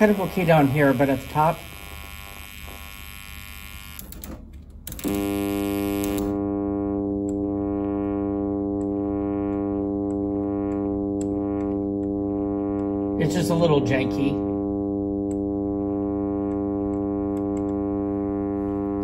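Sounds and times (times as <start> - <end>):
buzzy test tone: 0.0 - 4.0, 5.0 - 19.0
crackle: 0.0 - 4.2, 4.9 - 19.0
faint ticks: 8.7 - 13.0.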